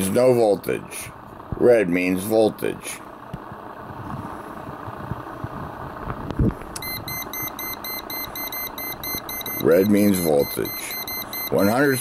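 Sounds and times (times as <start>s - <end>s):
steady background hiss: 0.0s - 12.0s
voltage detector beeping rapidly: 6.8s - 12.0s.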